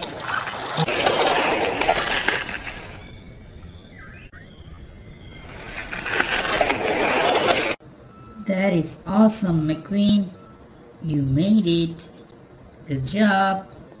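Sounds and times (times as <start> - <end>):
toy car wheels rattling: 5.5 - 7.8.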